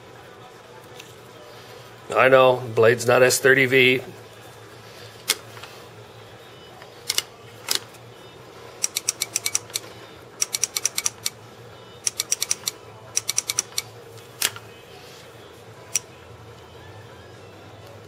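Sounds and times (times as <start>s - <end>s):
electrode tapping with sharp clicks: 10.4s - 11.4s.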